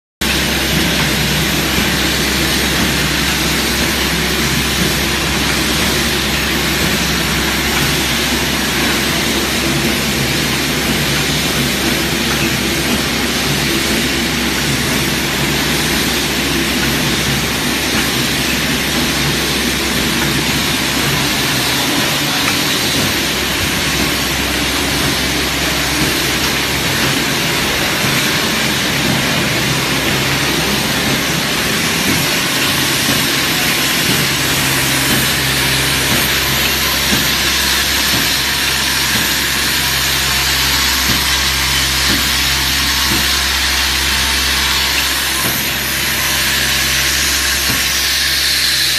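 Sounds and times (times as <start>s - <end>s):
machine hum: 0.2s - 48.9s.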